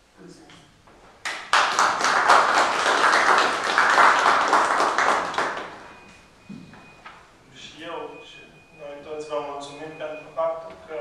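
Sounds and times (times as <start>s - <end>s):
audience applauding: 1.2s - 6.0s.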